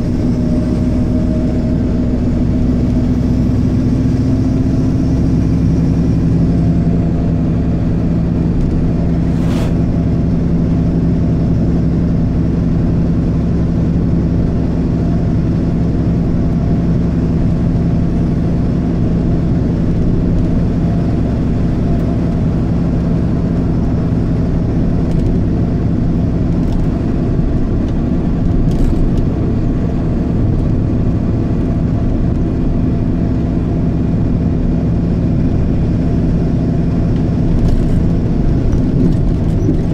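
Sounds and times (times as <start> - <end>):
vehicle engine cruising: 0.0 - 39.9
tyre and road noise: 5.8 - 11.6, 18.9 - 39.9.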